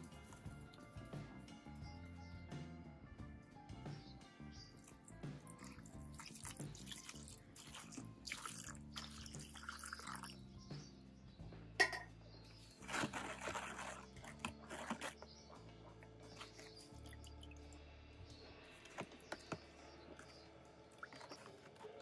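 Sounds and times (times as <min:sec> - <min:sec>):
background music: 0:00.0 - 0:22.0
water sloshing: 0:04.9 - 0:10.3, 0:12.8 - 0:17.7
water pouring into plastic tub: 0:05.4 - 0:10.4, 0:12.8 - 0:15.2.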